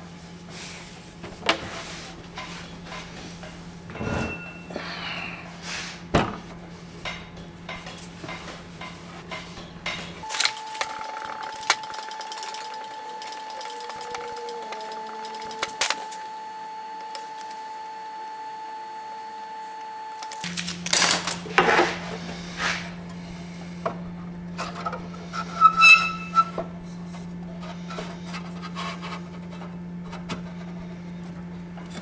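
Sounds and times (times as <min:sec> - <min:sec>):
metal parts clicking on steel bench: 0:07.1 - 0:16.2
faint high whine: 0:10.2 - 0:28.6.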